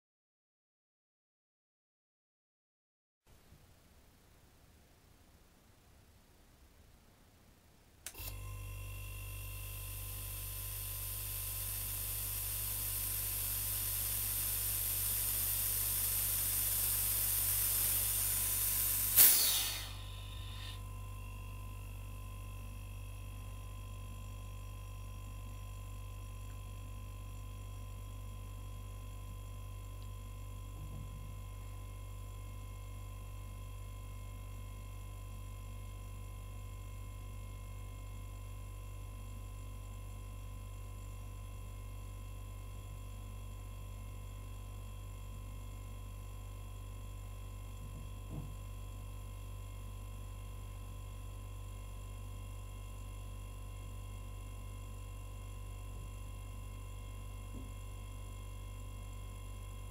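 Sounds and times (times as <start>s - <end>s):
faint steady hum: 3.3s - 59.9s
compressor pumping with hiss: 9.7s - 20.9s
valve releasing short hiss: 11.2s - 20.8s.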